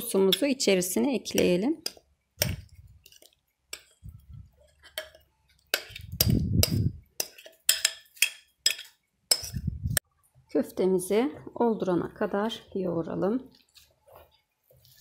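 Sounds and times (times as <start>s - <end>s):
spoon scraping glass bowl: 3.0s - 9.8s.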